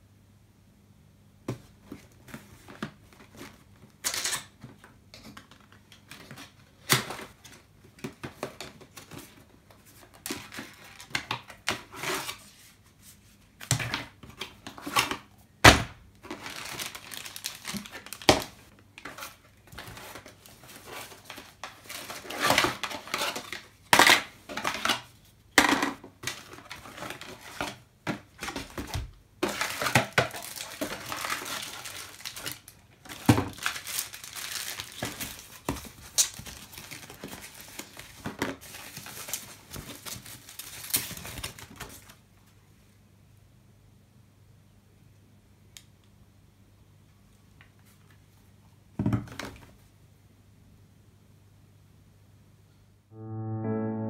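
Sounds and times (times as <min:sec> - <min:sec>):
cardboard and plastic rustling: 0:01.5 - 0:15.3, 0:16.1 - 0:42.2.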